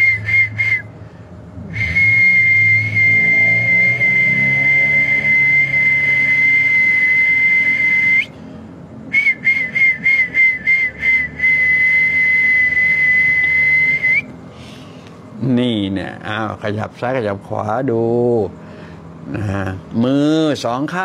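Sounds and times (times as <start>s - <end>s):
high steady whistle: 0.0s - 0.9s, 1.6s - 8.5s, 9.1s - 14.4s
quick short whistle blips: 1.7s - 8.3s, 9.2s - 14.3s.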